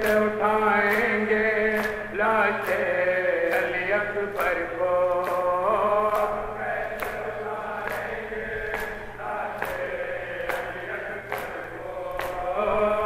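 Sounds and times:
men chanting together: 0.0 - 13.0.

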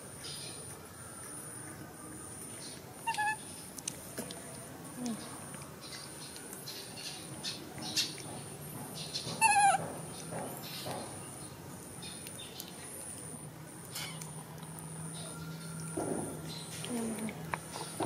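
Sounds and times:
baby monkey squealing: 3.0 - 3.4, 9.4 - 9.8.

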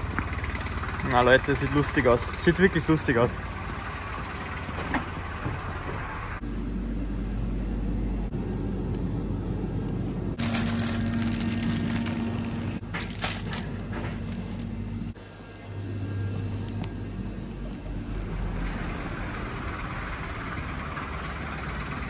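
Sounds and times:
shop interior hum and hiss: 0.0 - 22.0
plastic food packaging crinkling: 10.4 - 15.0.

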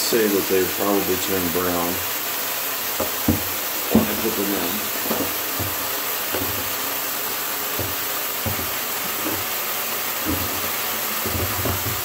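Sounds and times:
shower sprayer hissing: 0.0 - 12.0
rock knocking against bathtub: 3.0 - 4.4, 5.0 - 6.8, 7.8 - 9.4, 10.2 - 12.0.

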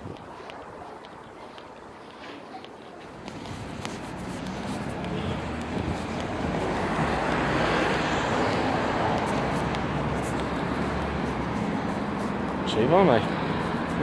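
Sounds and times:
vehicle passing on street: 0.1 - 14.0.

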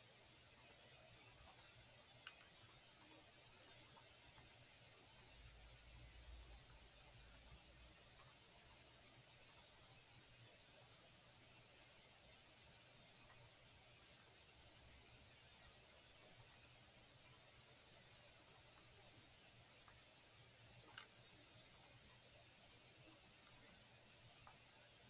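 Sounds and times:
faint computer mouse clicks: 0.6 - 0.8, 1.5 - 3.8, 5.2 - 5.4, 6.4 - 7.6, 8.2 - 8.9, 9.5 - 9.7, 10.8 - 11.0, 13.2 - 13.4, 14.0 - 14.2, 15.6 - 16.6, 17.2 - 17.4, 18.5 - 18.9, 20.9 - 21.1, 21.7 - 22.0.

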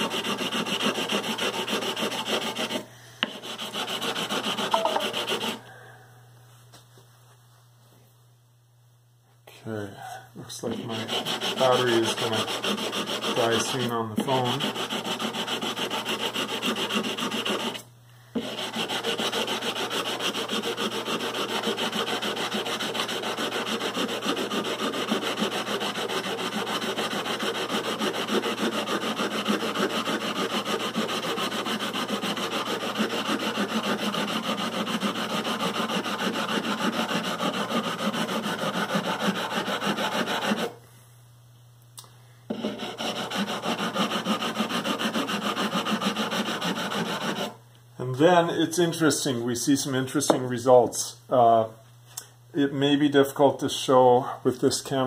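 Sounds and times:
sanding block scraping metal frets: 0.0 - 5.6, 10.7 - 17.8, 18.4 - 40.7, 42.5 - 47.5.

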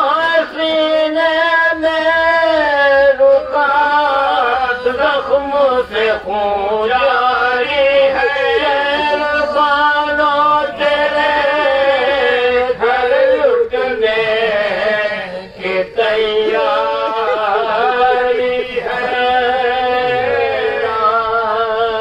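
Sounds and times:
men chanting mournfully: 0.0 - 22.0.

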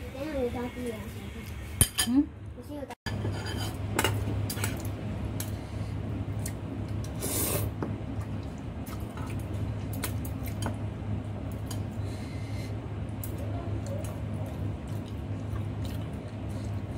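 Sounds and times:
person slurping noodles: 7.2 - 7.8.

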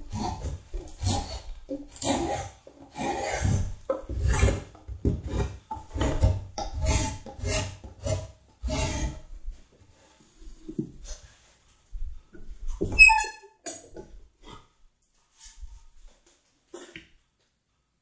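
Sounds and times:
hand tool scraping wood: 0.0 - 9.3.

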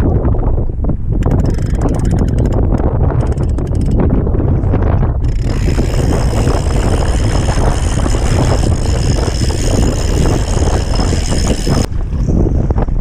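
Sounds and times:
strong wind buffeting microphone: 0.0 - 13.0.

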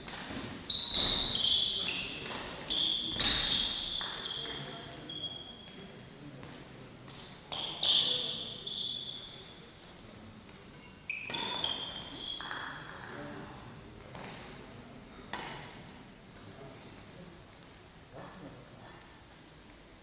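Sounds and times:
shoes squeaking on floor: 0.3 - 5.9, 7.5 - 9.6, 10.7 - 13.1.

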